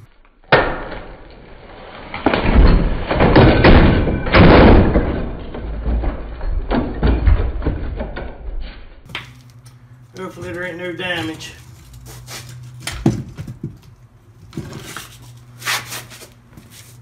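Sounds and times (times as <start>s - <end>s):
heavy metal crashing and banging: 2.2s - 8.4s.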